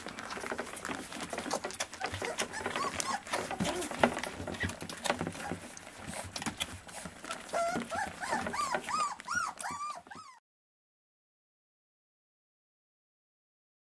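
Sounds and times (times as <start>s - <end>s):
puppies suckling: 0.0s - 10.4s
puppies whimpering: 0.0s - 10.4s.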